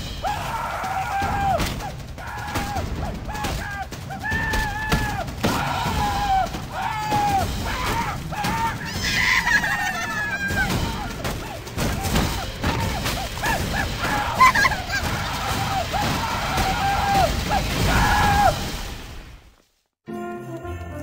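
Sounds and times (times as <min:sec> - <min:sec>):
high-pitched cartoonish voice cries: 0:08.8 - 0:11.1.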